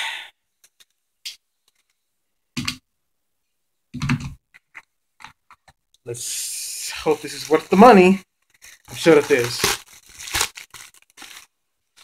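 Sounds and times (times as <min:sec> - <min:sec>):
plastic bag rustling: 0:06.7 - 0:12.0.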